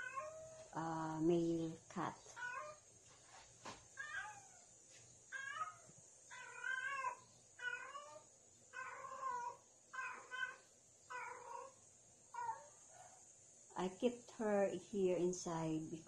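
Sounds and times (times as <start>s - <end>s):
cat meowing: 2.4s - 2.8s, 4.0s - 4.6s, 5.3s - 8.2s, 8.8s - 11.8s.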